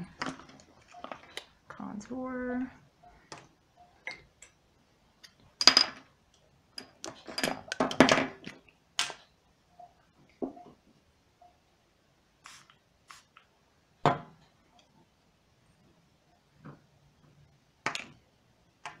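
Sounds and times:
makeup containers clattering: 6.8 - 9.2.

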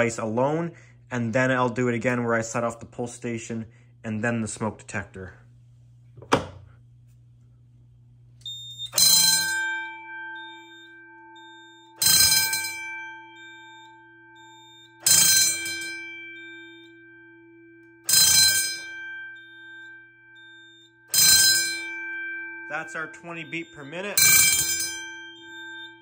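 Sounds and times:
fire alarm bell strikes: 0.0 - 2.9, 8.4 - 26.0
low steady hum: 0.0 - 26.0.

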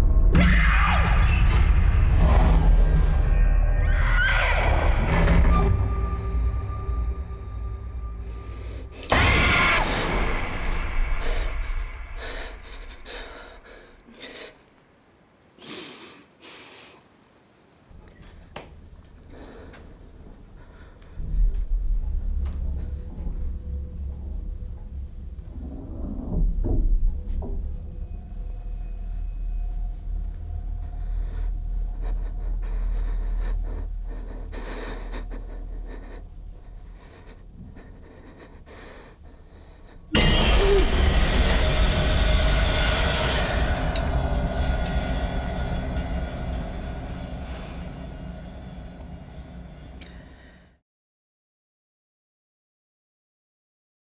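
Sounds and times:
low rumble: 0.0 - 4.0, 20.6 - 50.7
low dark drone: 0.0 - 14.0, 20.3 - 50.8
breathy hisses: 30.0 - 50.8.

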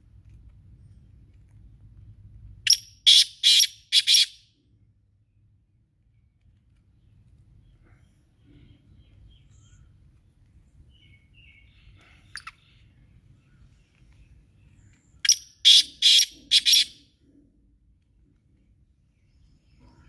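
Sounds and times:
francolin harsh rasping call: 2.7 - 4.4, 15.3 - 17.0
faint bird chirps: 6.0 - 17.0, 18.6 - 20.0.

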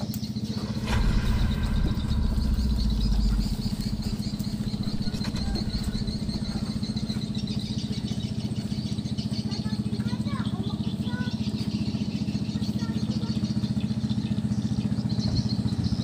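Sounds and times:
small engine idling: 0.0 - 16.0
deep rumble: 0.2 - 9.8.

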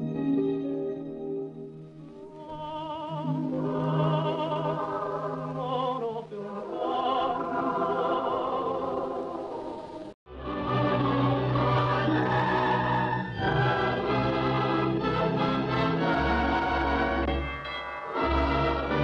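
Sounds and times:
orchestral film music: 0.0 - 19.0
choir singing held notes: 2.0 - 19.0.

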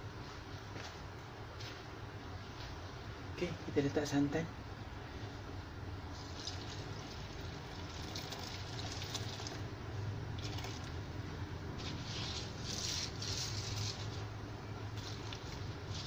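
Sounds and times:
steady low hum: 0.0 - 16.0
hand squishing wet rice: 6.1 - 9.7, 10.3 - 14.3, 14.9 - 16.0
liquid pouring onto rice: 6.1 - 9.7, 10.4 - 11.0.

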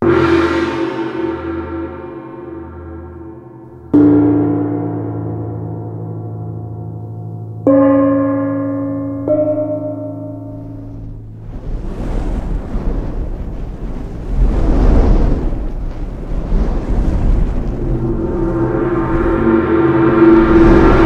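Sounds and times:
gongs struck with a mallet: 0.0 - 11.4.

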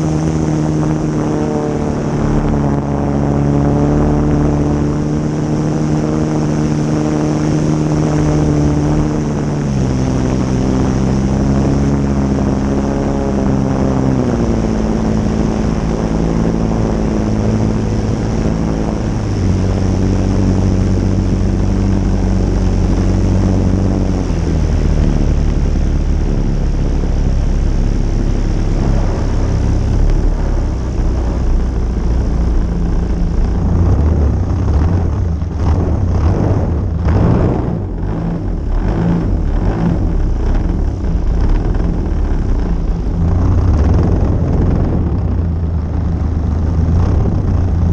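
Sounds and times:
model aircraft engine: 0.0 - 47.9.

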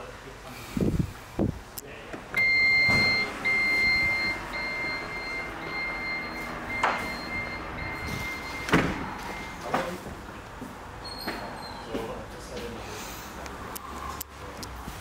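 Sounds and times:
tailgate motor humming: 2.4 - 9.4
high warning beeps: 2.4 - 9.8
tailgate shutting with a thud: 8.6 - 9.1.

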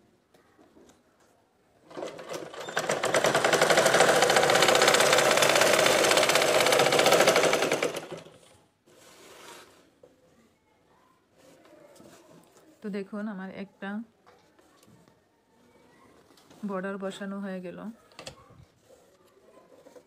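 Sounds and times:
sewing machine stitching: 1.8 - 8.5.

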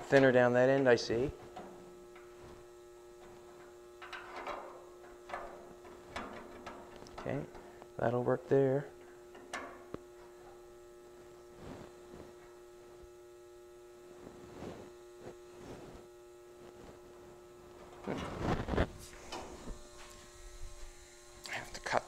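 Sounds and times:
steady electrical hum: 0.0 - 22.0
metal grate scraping and tapping: 4.0 - 7.4.

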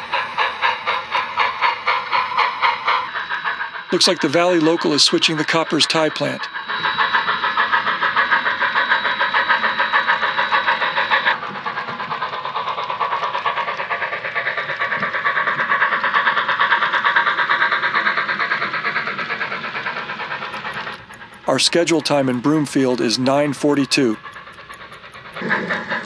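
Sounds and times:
thin steady whine: 0.0 - 11.4, 20.2 - 26.0
model steam locomotive chuffing: 0.0 - 26.0.

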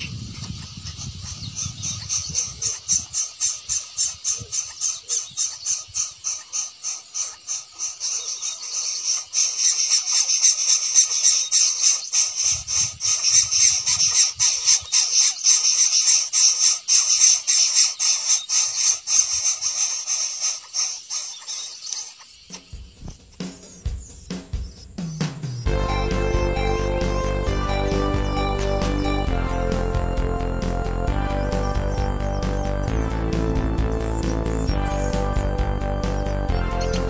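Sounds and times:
bird nestling begging calls: 0.0 - 29.5, 30.8 - 33.1, 33.8 - 37.0.

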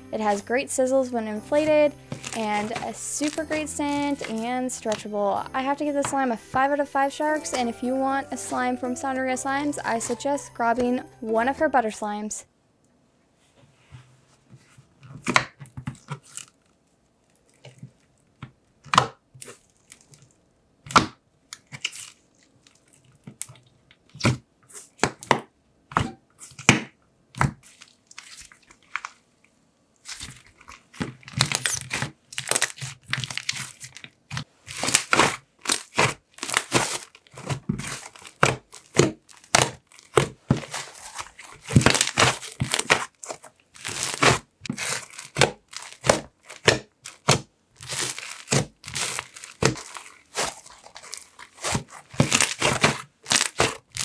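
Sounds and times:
slime clicking and crackling: 21.6 - 24.3, 30.0 - 54.0.

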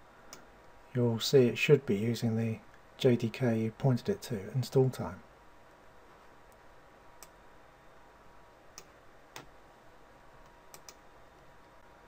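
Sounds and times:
room hiss: 0.0 - 12.0
computer mouse clicks: 10.7 - 11.0.

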